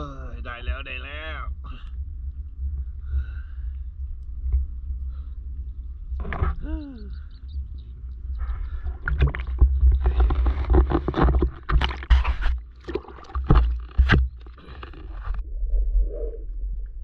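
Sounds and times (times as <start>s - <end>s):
water splashing and sloshing: 1.5s - 15.9s
knocks and scrapes: 6.1s - 6.7s, 8.5s - 16.4s.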